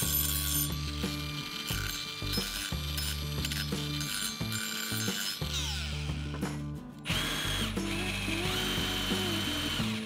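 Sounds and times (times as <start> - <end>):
angle grinder grinding metal: 0.0 - 10.0
background music: 0.0 - 10.0
drill motor whining: 0.0 - 10.0.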